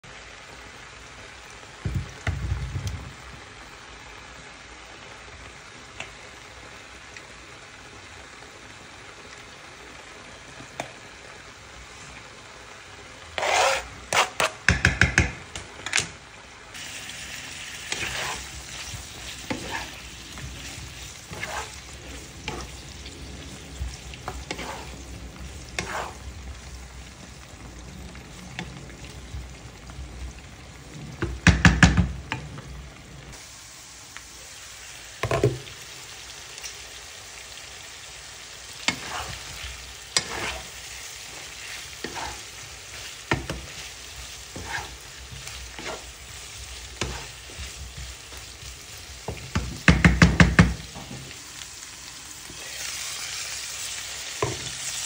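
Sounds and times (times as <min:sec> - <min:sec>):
meat and onion sizzling: 0:00.0 - 0:55.0
spatula scraping pan: 0:13.3 - 0:15.0, 0:17.6 - 0:26.4, 0:38.8 - 0:51.1
spatula knocking pan: 0:14.1 - 0:15.5, 0:31.2 - 0:32.4, 0:43.3 - 0:43.8, 0:47.0 - 0:48.5, 0:49.2 - 0:51.2.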